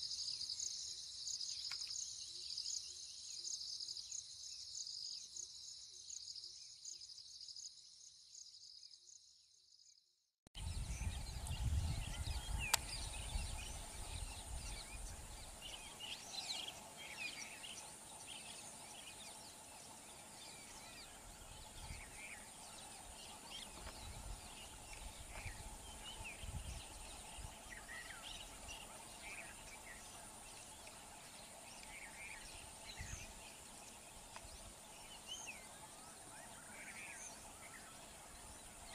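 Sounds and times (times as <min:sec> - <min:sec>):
birds chirping: 0:10.6 - 0:38.9
high insect drone: 0:10.6 - 0:38.9.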